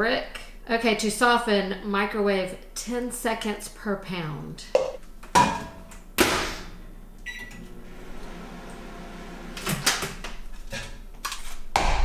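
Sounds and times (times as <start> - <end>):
microwave humming: 5.2 - 10.4.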